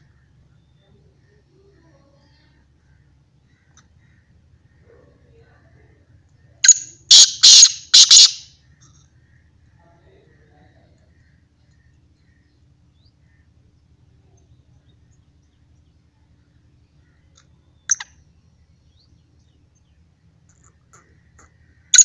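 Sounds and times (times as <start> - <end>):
low steady rumble: 0.0 - 22.0
small birds chirping: 0.0 - 22.0
harsh bird call: 6.6 - 8.5.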